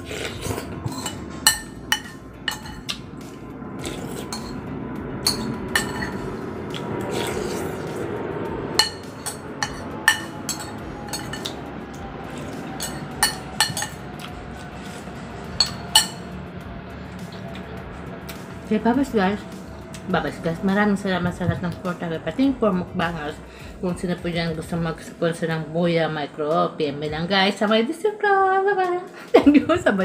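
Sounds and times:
eating sounds: 0:00.0 - 0:01.3, 0:02.7 - 0:04.6, 0:06.2 - 0:08.2, 0:11.4 - 0:16.0, 0:17.0 - 0:18.6
cutlery clinking on ceramic bowl: 0:00.8 - 0:03.0, 0:04.3 - 0:04.6, 0:05.3 - 0:06.3, 0:08.8 - 0:11.6, 0:12.8 - 0:14.0, 0:15.6 - 0:16.3.

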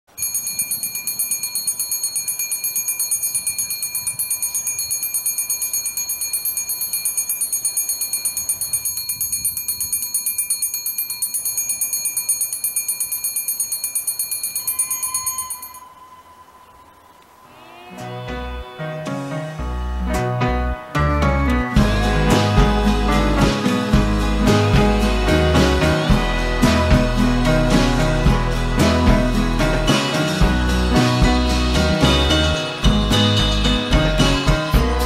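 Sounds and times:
level crossing bell ringing: 0:00.1 - 0:16.2.

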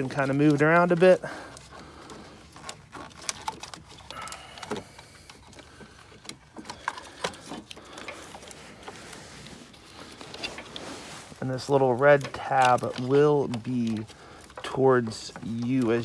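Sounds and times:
clothing brushing against camera: 0:08.2 - 0:12.2.

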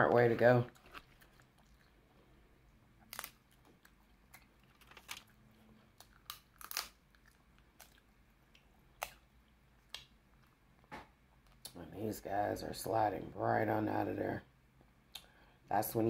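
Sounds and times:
faint chewing: 0:00.6 - 0:11.8
crab shell cracking: 0:03.0 - 0:05.2, 0:05.9 - 0:10.2.

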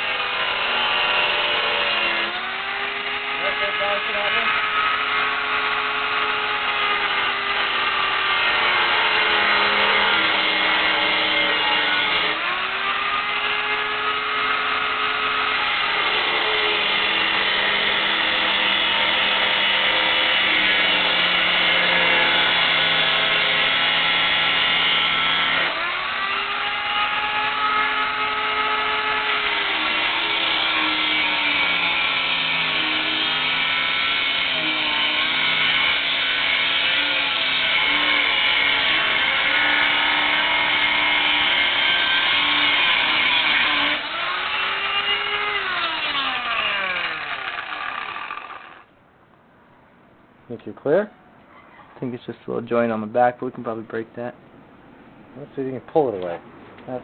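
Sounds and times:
cut-off wheel grinding steel: 0:00.0 - 0:48.9.

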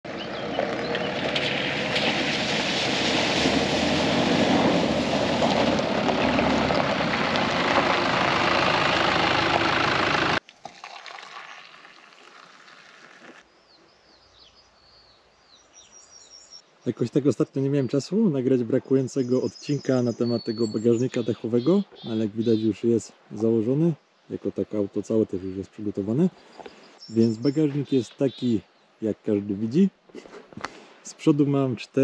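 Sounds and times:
faint birdsong: 0:00.1 - 0:01.4, 0:13.4 - 0:29.8
tyres churning through water and stones: 0:00.2 - 0:13.5
vehicle engine running: 0:04.8 - 0:10.4.

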